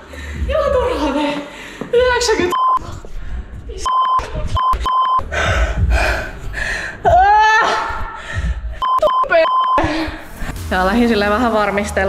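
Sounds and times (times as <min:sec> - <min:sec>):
short electronic beeps: 0:03.8 - 0:05.2, 0:08.8 - 0:09.8.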